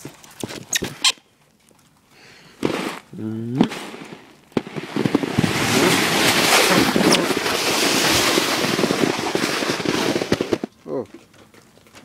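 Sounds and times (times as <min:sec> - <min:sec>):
sled rushing over snow: 0:02.6 - 0:10.7.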